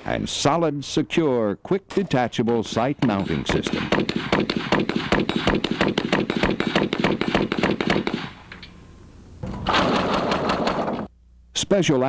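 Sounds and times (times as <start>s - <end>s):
machine gun automatic burst: 3.5s - 8.4s, 9.6s - 11.1s.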